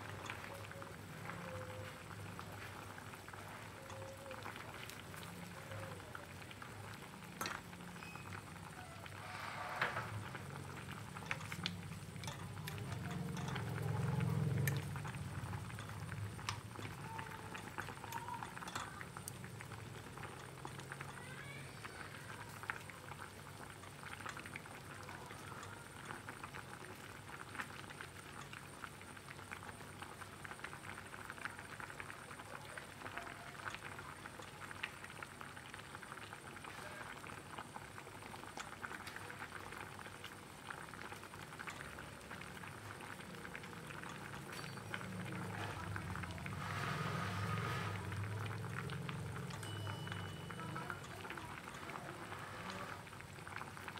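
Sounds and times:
pot of water boiling: 0.0s - 53.9s.

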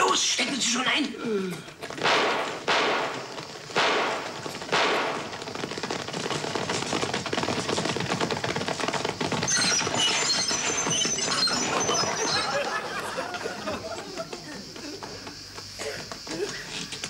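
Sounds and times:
stagecoach rolling over rough ground: 1.6s - 17.0s
galloping horses' hooves: 1.7s - 17.0s
gunshots: 2.0s - 5.7s.

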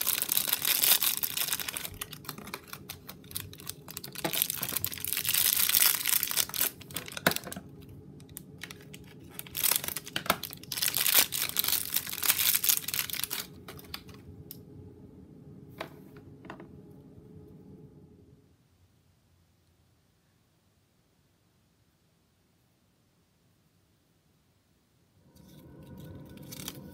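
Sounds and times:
plastic bag crinkling and tearing: 0.0s - 14.2s, 25.4s - 26.9s.

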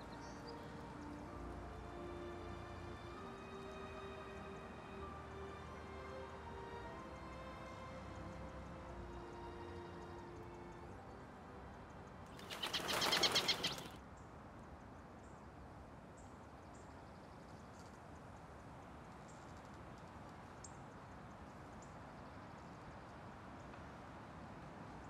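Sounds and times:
faint high bird chirps: 12.4s - 14.0s
rapid fluttering rattle: 12.4s - 14.0s.

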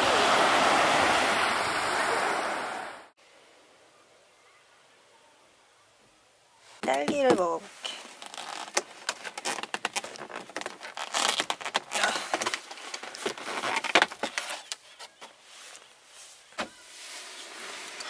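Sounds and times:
plastic container crackling: 6.8s - 14.8s.

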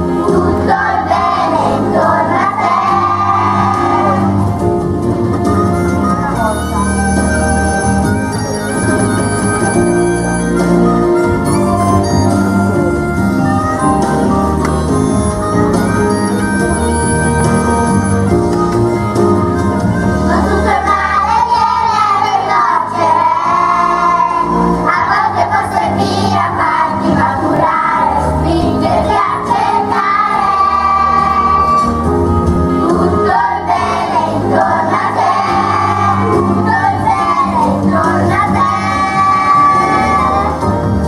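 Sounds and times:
children's choir singing: 0.0s - 4.5s, 20.2s - 32.1s, 32.7s - 40.8s
instrumental accompaniment: 0.0s - 41.0s.

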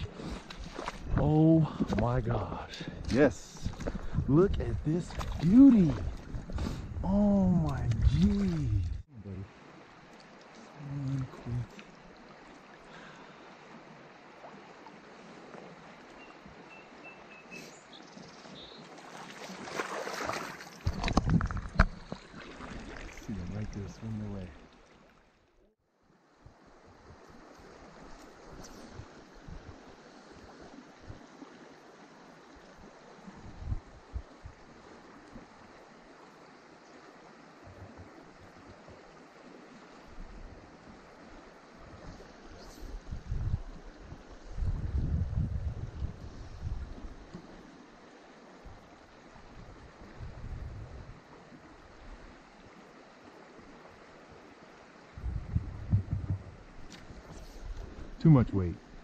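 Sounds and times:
water splashing around legs: 0.0s - 2.0s, 5.0s - 6.8s, 7.5s - 9.1s, 18.9s - 23.7s
shallow river flowing: 0.0s - 59.0s
wind buffeting microphone: 3.0s - 9.1s, 33.4s - 34.6s, 42.9s - 47.2s, 49.5s - 51.2s, 55.2s - 58.2s.

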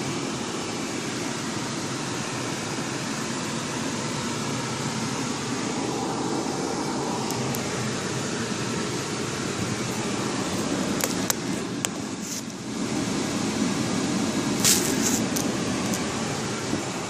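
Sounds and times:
car engine idling: 0.0s - 17.0s
ventilation fan blowing: 0.0s - 17.0s
brief hiss: 14.6s - 15.4s.

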